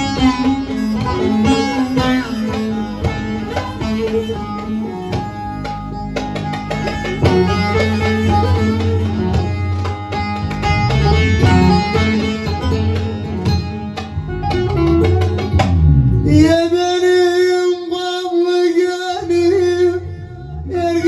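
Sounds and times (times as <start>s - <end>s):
low accompaniment: 0.0s - 21.0s
saz playing fast instrumental: 0.0s - 21.0s.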